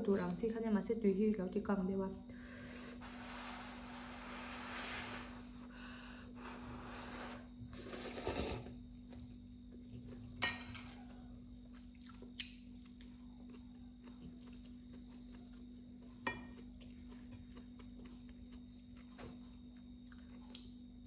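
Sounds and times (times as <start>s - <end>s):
noodles being slurped: 7.0s - 8.8s
chewing: 10.9s - 21.0s.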